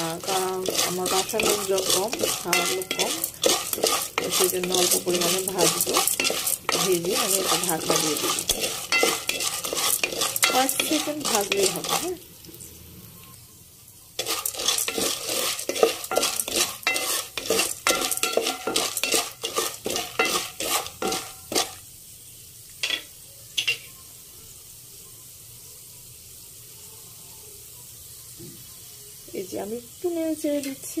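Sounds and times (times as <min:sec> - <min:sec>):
kernels rattling against pot: 0:00.0 - 0:12.2, 0:14.2 - 0:21.8
spatula scraping metal pot: 0:00.0 - 0:12.2, 0:14.2 - 0:21.8
oil sizzling: 0:00.0 - 0:31.0.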